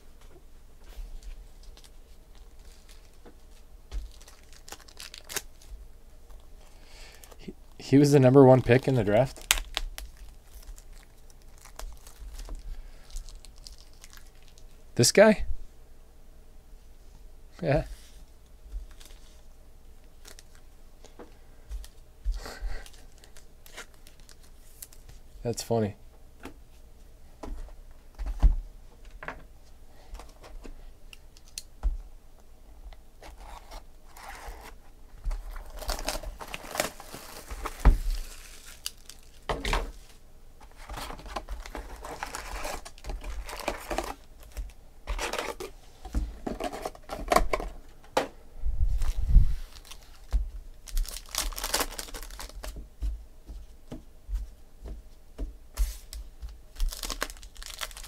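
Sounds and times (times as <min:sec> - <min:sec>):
shrink wrap and foil crinkling: 0:01.2 - 0:14.8, 0:18.8 - 0:20.8, 0:21.8 - 0:25.2, 0:31.1 - 0:31.7, 0:33.2 - 0:45.8, 0:49.0 - 0:52.8, 0:56.0 - 0:58.0.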